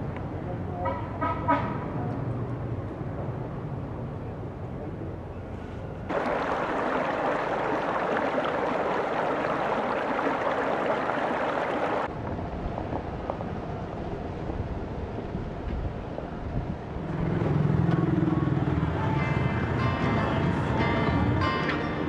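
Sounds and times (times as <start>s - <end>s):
river water flowing over rocks: 6.1s - 12.1s.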